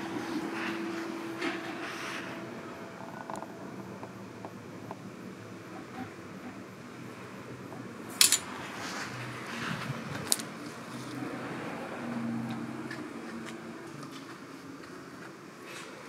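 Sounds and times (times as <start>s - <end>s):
clinking and rustling handling: 8.1s - 8.5s.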